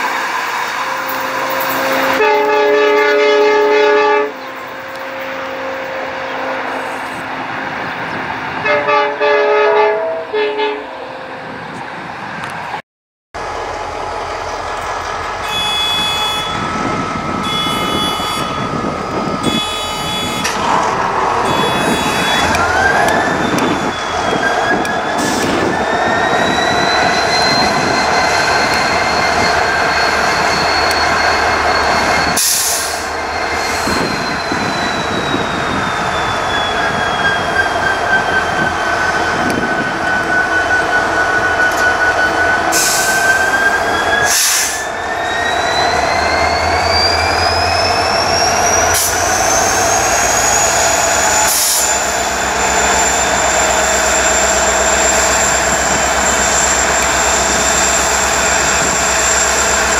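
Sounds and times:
diesel locomotive engine drone: 0.0s - 12.8s, 13.4s - 59.9s
high whine: 13.4s - 38.8s.

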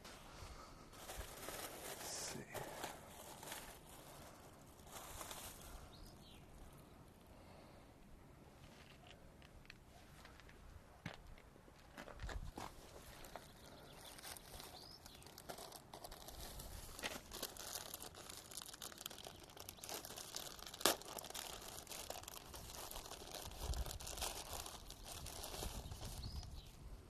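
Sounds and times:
plastic bag crinkling: 1.0s - 6.7s, 13.2s - 26.7s.

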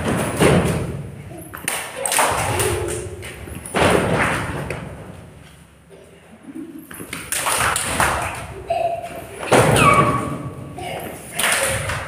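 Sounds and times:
children clapping: 1.6s - 3.1s, 7.1s - 8.5s, 11.2s - 12.0s.

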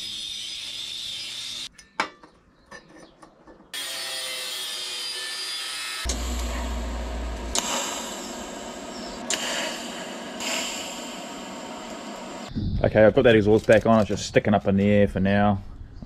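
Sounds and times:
angle grinder cutting steel: 0.0s - 1.7s, 3.8s - 12.5s
arc welding crackle: 0.0s - 1.7s, 6.0s - 12.5s
low hum: 6.1s - 12.9s.

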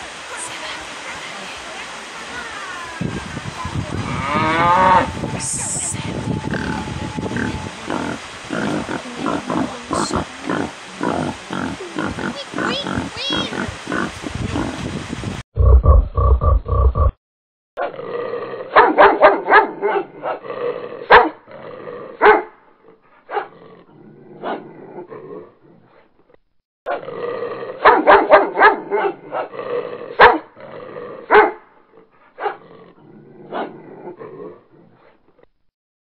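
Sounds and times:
dogs barking excitedly: 18.7s - 20.4s, 21.0s - 21.4s, 22.2s - 22.6s, 23.3s - 23.6s, 27.8s - 29.5s, 30.1s - 30.5s, 31.2s - 31.7s, 32.4s - 32.6s
dogs growling: 19.8s - 26.0s, 28.9s - 35.2s.

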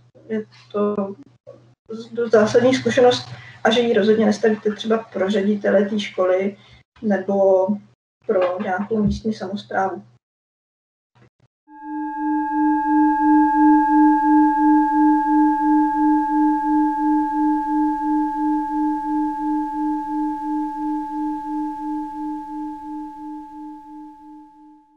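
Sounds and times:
bell-like tone ringing: 11.7s - 24.9s.

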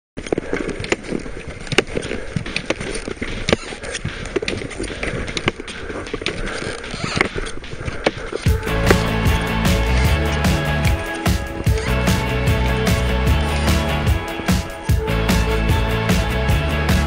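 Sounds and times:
clicks and knocks of steps: 0.2s - 10.1s
music: 4.8s - 17.0s
skis crunching through snow: 8.5s - 12.2s.

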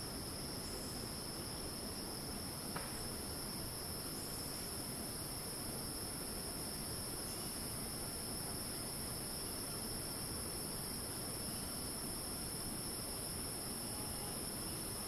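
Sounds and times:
cicadas screeching: 13.3s - 15.0s.

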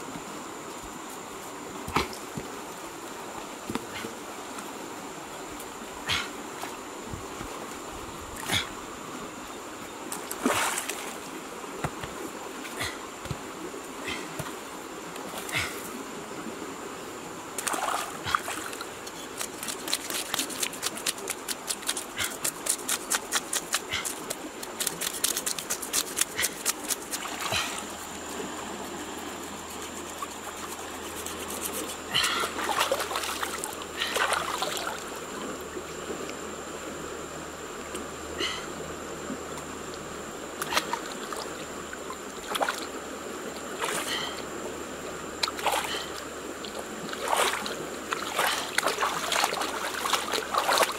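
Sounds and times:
water splashing and trickling: 10.0s - 16.7s, 17.3s - 35.8s, 40.6s - 44.6s, 45.3s - 50.9s
high insect buzz: 14.3s - 35.5s
knife scraping fish scales: 29.5s - 32.5s.

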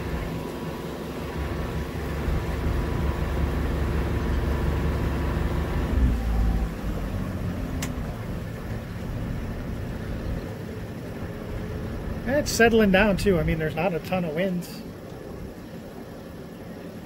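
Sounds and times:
boat engine running: 0.0s - 17.0s.

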